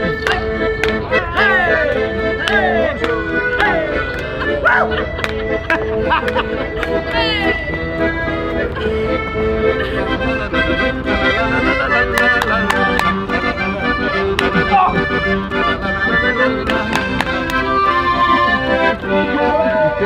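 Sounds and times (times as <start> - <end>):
accordion chords: 0.0 - 20.0
beat of sharp taps: 0.1 - 4.3, 11.9 - 19.1.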